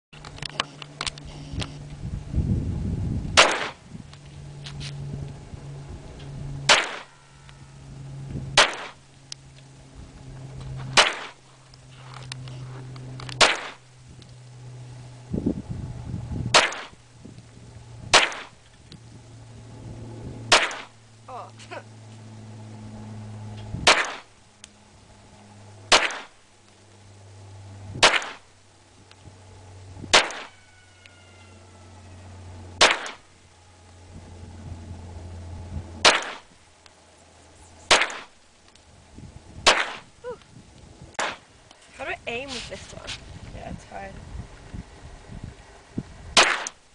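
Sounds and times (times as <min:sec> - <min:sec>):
pistol shots: 0:03.4 - 0:03.8, 0:06.7 - 0:07.1, 0:08.6 - 0:09.0, 0:11.0 - 0:11.4, 0:13.4 - 0:13.8, 0:16.5 - 0:17.0, 0:18.1 - 0:18.5, 0:20.5 - 0:20.9, 0:23.8 - 0:24.3, 0:25.9 - 0:26.3, 0:28.0 - 0:28.4, 0:30.1 - 0:30.5, 0:32.8 - 0:33.2, 0:36.0 - 0:36.5, 0:37.9 - 0:38.3, 0:39.6 - 0:40.1, 0:46.4 - 0:46.8.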